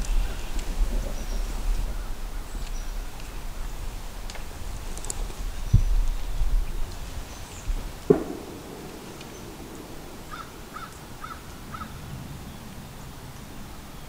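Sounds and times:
sharp knock: 8.1s - 10.5s
crow cawing: 9.8s - 12.0s.

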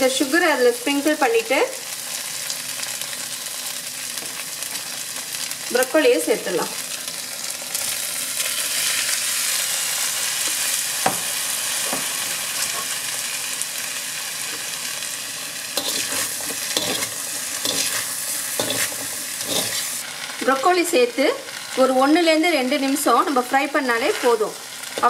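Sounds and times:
food sizzling in a wok: 0.0s - 25.0s
metal spatula scraping wok: 15.8s - 20.0s.

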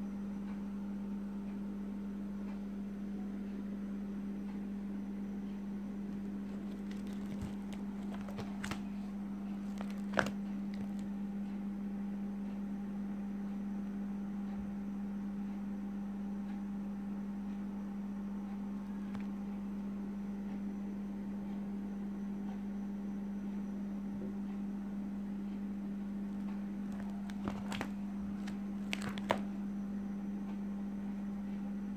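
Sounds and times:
low electrical hum: 0.0s - 31.9s
plastic pages clicking: 6.3s - 9.0s, 9.6s - 11.1s, 26.9s - 29.5s.

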